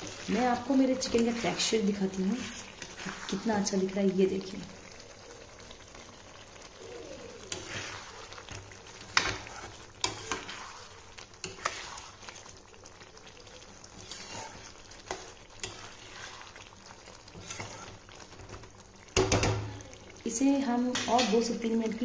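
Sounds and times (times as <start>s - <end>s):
gravy sizzling in a metal pan: 0.0s - 22.0s
metal spatula scraping a pan: 0.4s - 3.7s, 7.5s - 8.4s, 9.0s - 12.4s, 13.9s - 16.6s, 17.3s - 18.4s.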